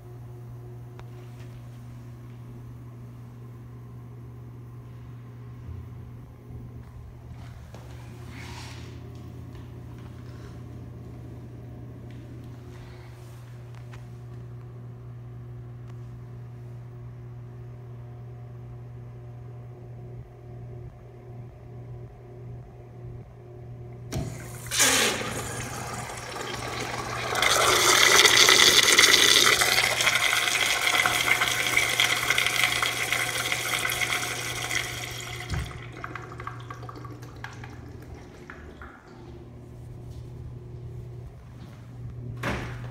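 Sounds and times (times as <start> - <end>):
urinal flushing: 23.9 - 40.3.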